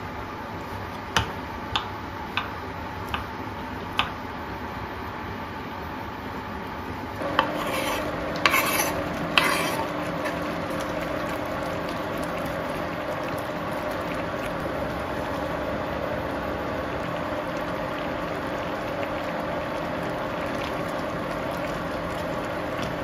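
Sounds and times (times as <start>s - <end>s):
water bubbling in a pan: 7.3s - 23.0s.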